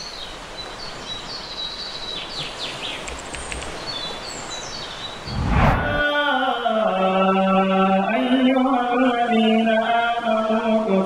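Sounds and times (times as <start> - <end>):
loud low whoosh: 5.2 - 6.2.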